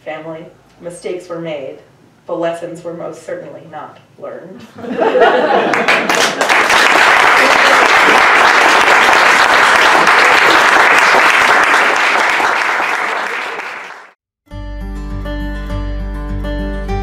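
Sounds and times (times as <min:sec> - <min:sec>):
audience applauding: 0:05.6 - 0:14.2
music: 0:14.4 - 0:17.0.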